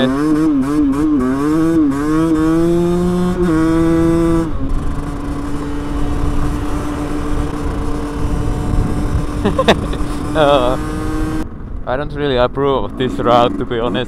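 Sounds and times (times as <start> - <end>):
motorcycle engine accelerating: 0.0 - 14.0
wind rush: 3.0 - 13.1.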